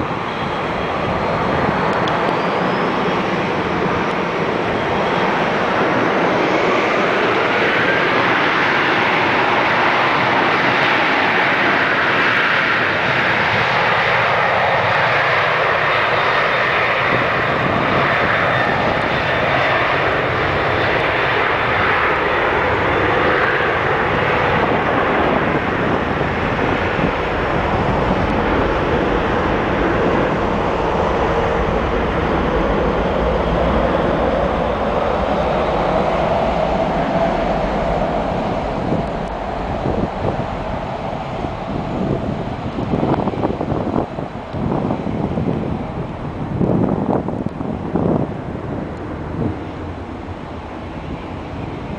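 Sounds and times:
jet engines roaring: 0.0s - 51.9s
deep rumble: 24.3s - 45.9s.

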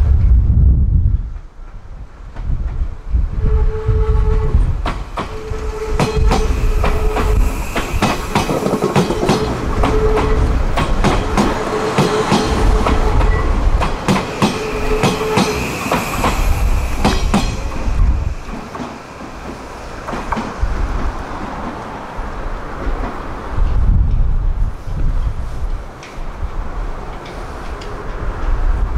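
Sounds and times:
electric train hum: 0.0s - 28.9s
train wheels clacking over rail joints: 4.3s - 22.0s, 25.6s - 28.6s.

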